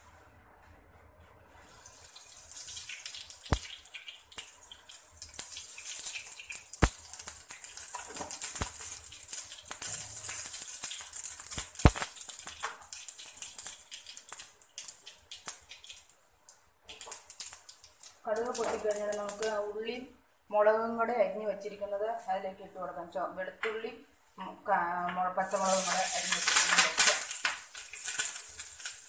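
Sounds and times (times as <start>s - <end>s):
seeds sizzling in oil: 1.6s - 19.6s, 25.4s - 29.0s
seeds popping: 2.6s - 16.2s, 16.9s - 19.6s, 25.5s - 29.0s.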